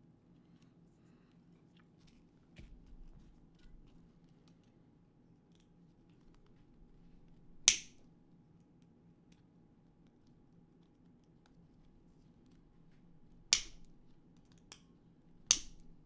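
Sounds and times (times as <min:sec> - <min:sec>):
sharp snap: 0:07.6 - 0:08.0, 0:13.5 - 0:13.9, 0:15.5 - 0:16.0.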